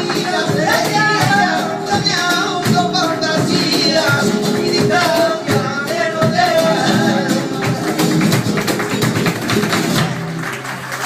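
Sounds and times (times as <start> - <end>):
person singing: 0.0 - 8.2
guitar: 0.0 - 11.0.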